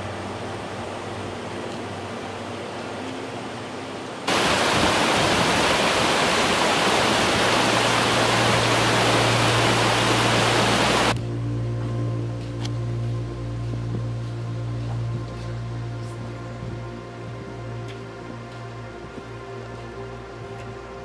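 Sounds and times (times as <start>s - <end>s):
soft ambient music: 0.0s - 21.0s
stream rushing over stones: 4.3s - 11.2s.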